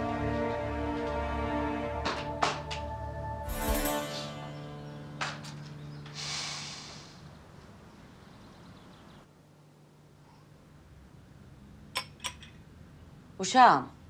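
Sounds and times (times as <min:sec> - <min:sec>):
low sustained music tone: 0:00.0 - 0:06.3
man exhaling sharply through nose: 0:06.2 - 0:07.2
tableware clinking: 0:12.0 - 0:12.6.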